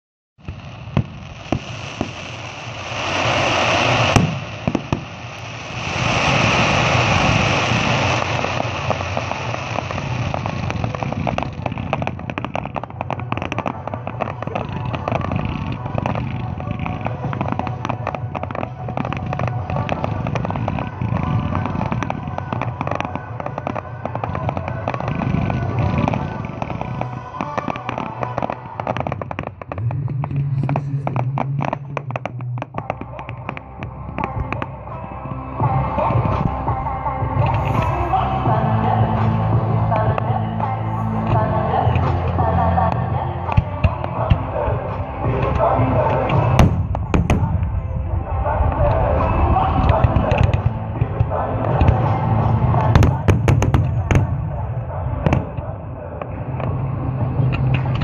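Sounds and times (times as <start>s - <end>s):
firework bangs: 0.4s - 34.7s, 41.3s - 58.0s
fireworks hissing crackle: 0.4s - 36.7s, 37.3s - 58.0s
rapid crackling pops: 3.1s - 34.6s.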